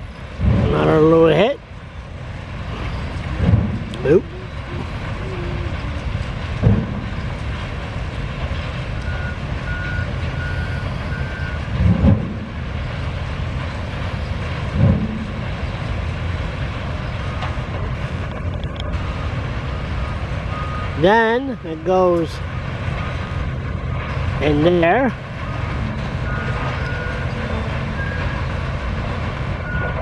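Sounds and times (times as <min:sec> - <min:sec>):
heavy diesel machinery running: 0:00.0 - 0:30.0
reversing alarm beeping: 0:09.0 - 0:11.7, 0:19.0 - 0:21.1, 0:25.3 - 0:28.7, 0:29.6 - 0:30.0.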